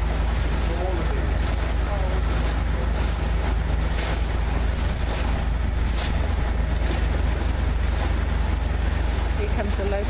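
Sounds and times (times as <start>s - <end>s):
boat engine humming: 0.0s - 10.0s
water rushing: 0.0s - 10.0s
wind buffeting microphone: 0.0s - 10.0s.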